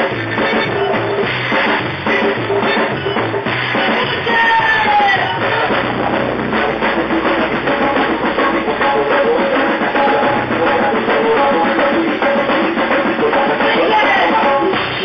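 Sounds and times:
drum hits: 0.0s - 15.0s
live band music: 0.0s - 15.0s.

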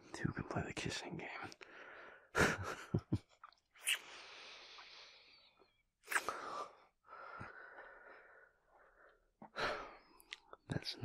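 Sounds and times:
man breathing: 1.6s - 2.4s, 4.0s - 10.3s.

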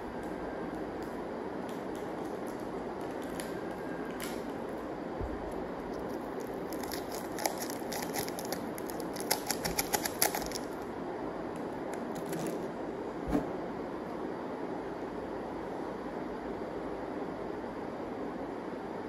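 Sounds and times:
steady background noise: 0.0s - 19.0s
plastic packets crinkling: 6.0s - 10.8s.

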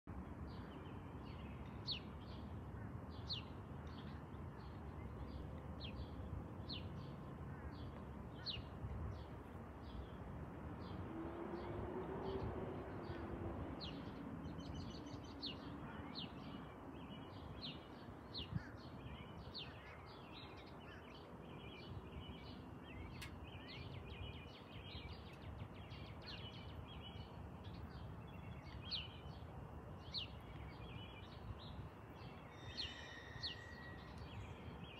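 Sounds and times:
small birds chirping: 12.3s - 34.9s.

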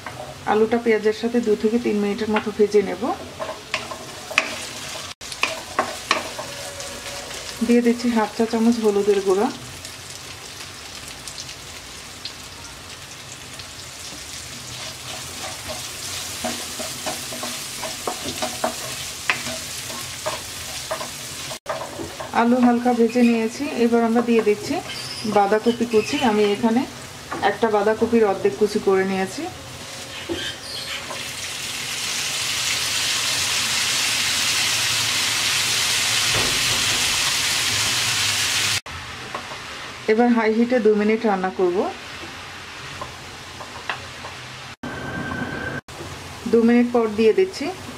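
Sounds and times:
potatoes sizzling in oil: 0.0s - 44.7s
wooden spatula scraping pan: 3.2s - 7.6s.

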